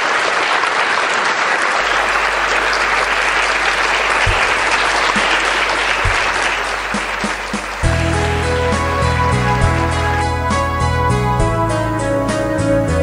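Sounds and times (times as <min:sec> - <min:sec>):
audience applauding: 0:00.0 - 0:11.7
low steady hum: 0:01.8 - 0:11.6
low thumps: 0:01.8 - 0:11.8.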